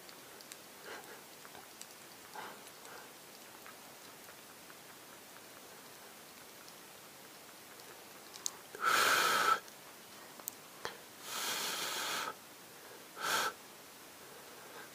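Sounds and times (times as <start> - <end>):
faint clicks: 0.0 - 8.8, 10.4 - 11.0.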